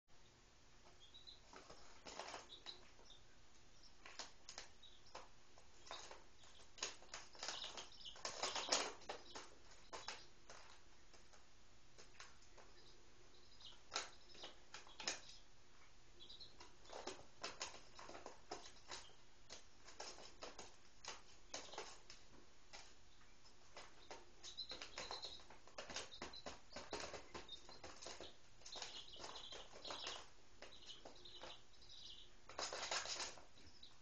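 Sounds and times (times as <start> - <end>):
chicks peeping: 0.2 - 34.0
chicks pecking on newspaper: 0.7 - 34.0.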